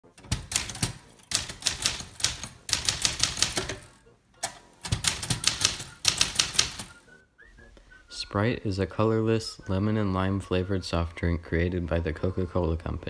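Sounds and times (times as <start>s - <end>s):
manual typewriter key strikes: 0.1s - 6.9s.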